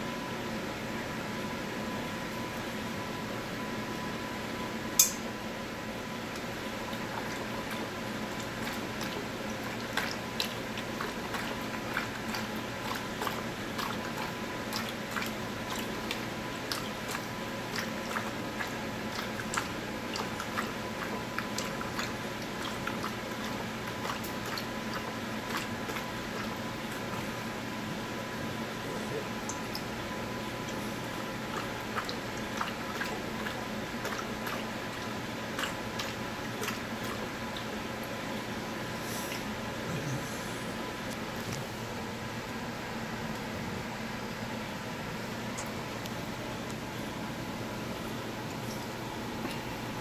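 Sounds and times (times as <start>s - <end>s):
steady hum: 0.0s - 50.0s
sharp click: 5.0s - 5.2s
dog lapping water from bowl: 6.4s - 38.3s.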